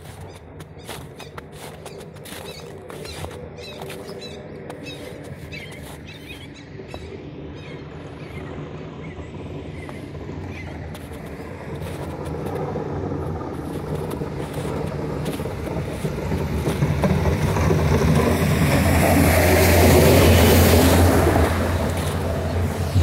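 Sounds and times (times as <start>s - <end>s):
vehicle approaching: 0.0s - 23.0s.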